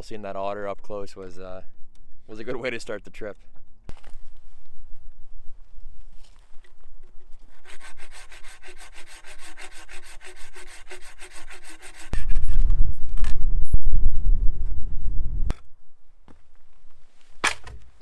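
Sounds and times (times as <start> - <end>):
hand saw cutting log: 7.5 - 12.6
low rumble on microphone: 12.2 - 15.6.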